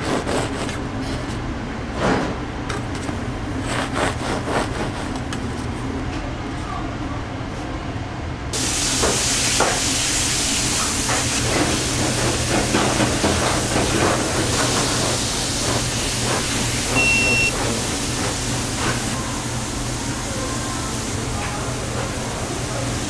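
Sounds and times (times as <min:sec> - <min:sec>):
griddle sizzling: 0:08.6 - 0:20.1
short beep: 0:17.0 - 0:17.5.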